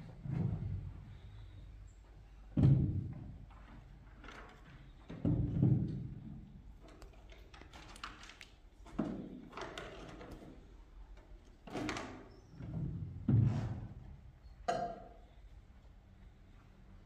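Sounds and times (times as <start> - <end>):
thuds and knocks: 2.5 - 3.3.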